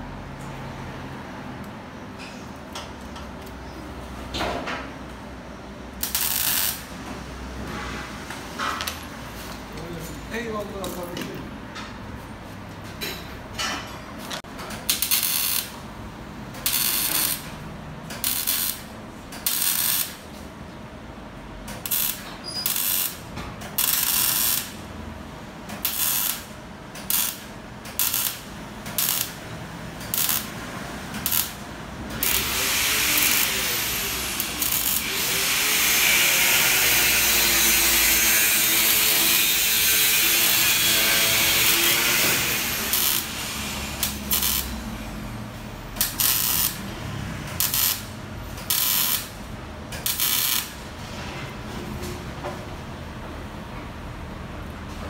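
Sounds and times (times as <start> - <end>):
electric welder bursts: 6.0 - 6.9, 14.9 - 15.8, 16.6 - 17.6, 18.2 - 20.2, 21.8 - 24.9, 25.8 - 29.4, 30.0 - 45.2, 45.9 - 49.4, 50.0 - 50.8.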